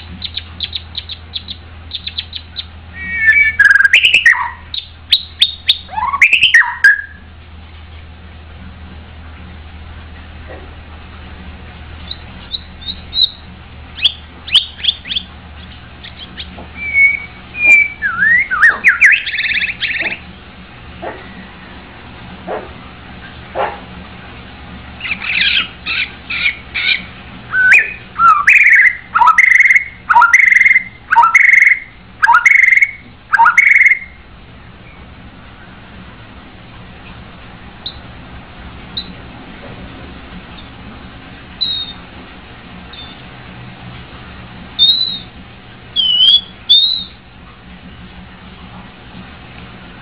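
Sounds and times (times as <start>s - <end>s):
loud repeated whistled bird notes: 0.2s - 7.2s, 12.0s - 15.3s, 16.0s - 20.2s, 25.0s - 34.2s, 41.6s - 42.0s, 42.9s - 43.2s, 44.8s - 45.3s, 46.0s - 47.2s
bird chirping and whistling: 0.2s - 7.3s, 12.0s - 20.2s, 25.0s - 34.2s, 41.6s - 42.0s, 42.9s - 43.2s, 44.8s - 45.3s, 46.0s - 47.2s.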